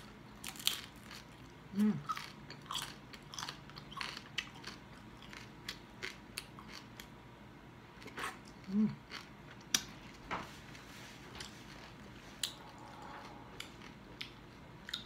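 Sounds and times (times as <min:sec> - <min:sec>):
crispy skin crunching when chewed: 0:00.4 - 0:07.1.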